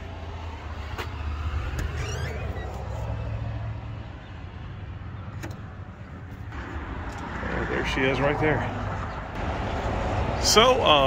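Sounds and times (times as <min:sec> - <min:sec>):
door squeaking open: 0:01.0 - 0:03.3.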